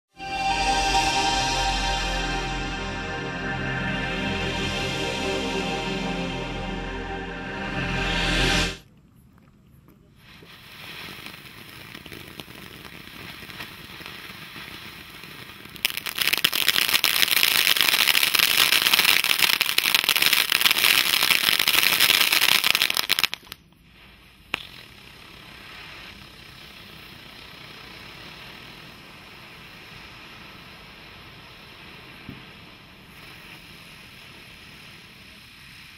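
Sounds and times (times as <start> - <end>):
firework crackling: 10.6 - 26.2, 29.1 - 35.9
firework hissing: 28.0 - 35.9.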